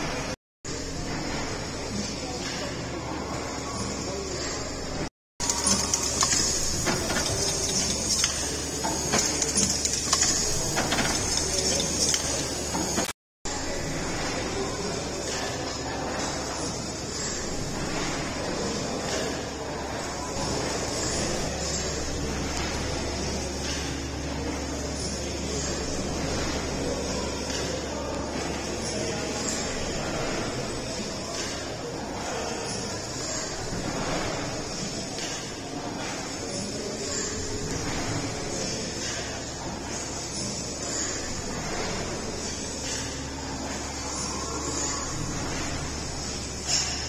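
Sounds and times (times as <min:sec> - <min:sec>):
large hall background din: 0:00.0 - 0:47.0
mechanical ticks and clicks: 0:05.4 - 0:13.1.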